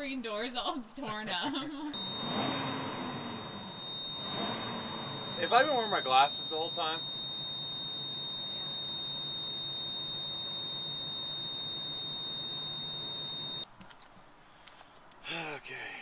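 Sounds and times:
high-pitched electronic tone: 2.0 - 13.6
low hum: 2.0 - 13.6.

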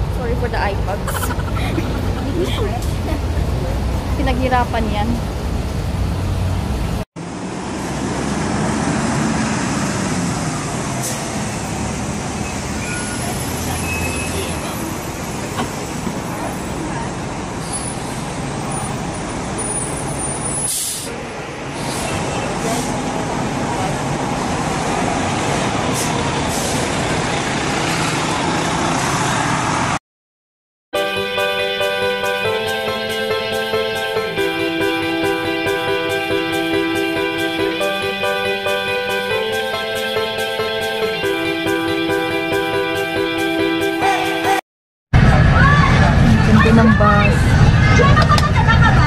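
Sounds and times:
bus engine idling: 0.0 - 7.9, 10.3 - 29.0
road traffic hum: 0.0 - 30.0, 31.4 - 44.6, 45.2 - 49.0
street noise: 0.0 - 30.0, 31.0 - 49.0.

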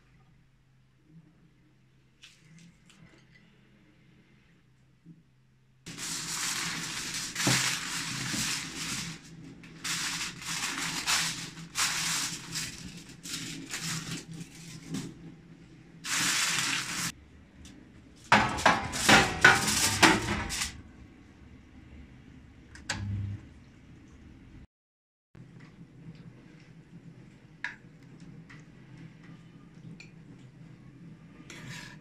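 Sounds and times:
aluminium foil crinkling: 5.9 - 15.2, 16.1 - 17.1
dish clattering on oven rack: 18.3 - 20.8.

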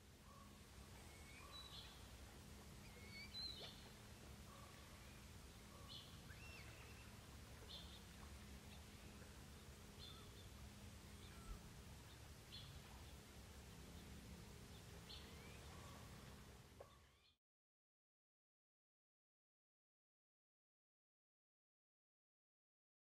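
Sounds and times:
low steady hum: 0.0 - 17.4
faint short bird calls: 2.8 - 7.2, 11.2 - 11.7.

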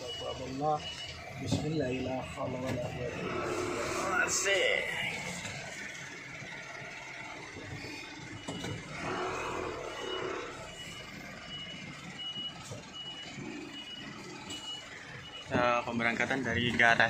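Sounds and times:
truck reversing alarm beeping: 0.0 - 17.0
truck running noise: 0.0 - 17.0.

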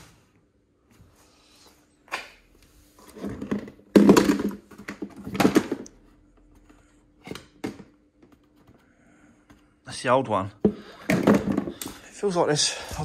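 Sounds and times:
parts knocking and clattering: 3.2 - 6.0, 10.6 - 12.0.

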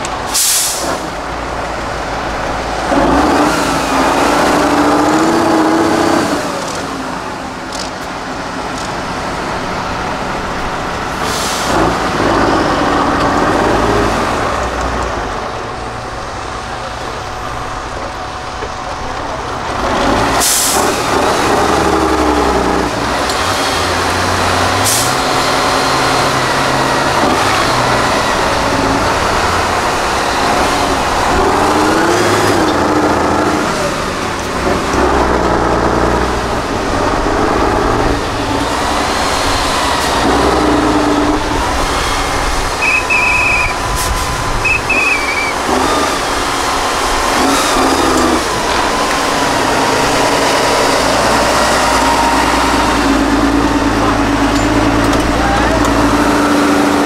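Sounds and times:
truck diesel engine revving: 0.0 - 57.0
short high tones: 42.8 - 44.0, 44.6 - 45.6.

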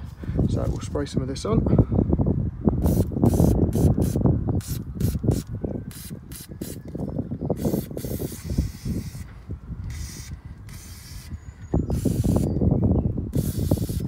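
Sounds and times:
aerosol spray hissing: 7.6 - 9.2, 9.9 - 11.3, 13.4 - 14.0.

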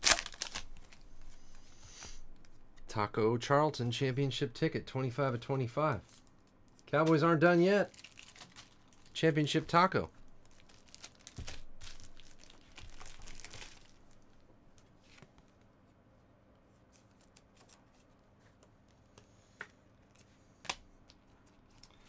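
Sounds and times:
foil wrapper tearing and crinkling: 0.0 - 1.0, 7.8 - 9.2, 10.4 - 14.2.

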